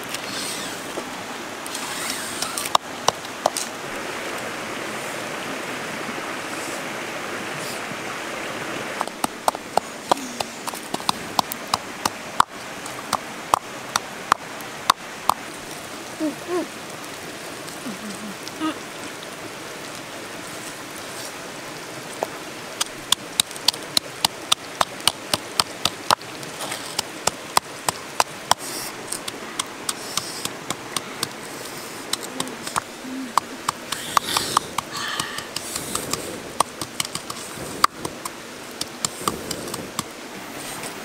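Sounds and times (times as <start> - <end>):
river rushing: 0.0 - 41.0
sharp clicks and taps: 9.0 - 15.4, 22.8 - 26.3, 32.1 - 40.1.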